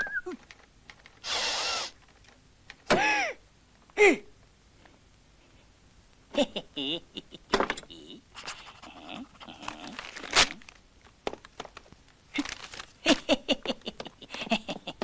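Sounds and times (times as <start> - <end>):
man making cartoon vocal noises: 4.0 - 4.3, 6.4 - 10.2.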